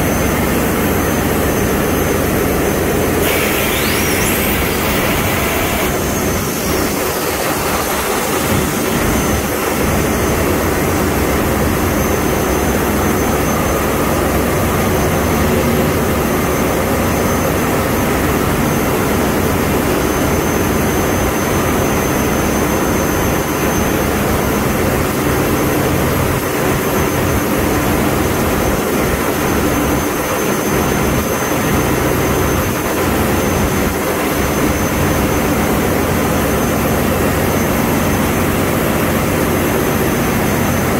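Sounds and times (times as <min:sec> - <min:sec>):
diesel engine roaring: 0:00.0 - 0:40.9.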